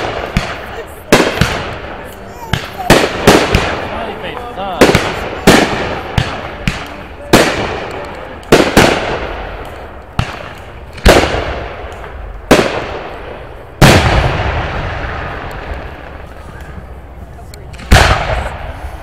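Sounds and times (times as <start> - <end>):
firework shells booming: 0.0 - 16.9, 17.7 - 19.0
small firework cracks: 0.0 - 19.0.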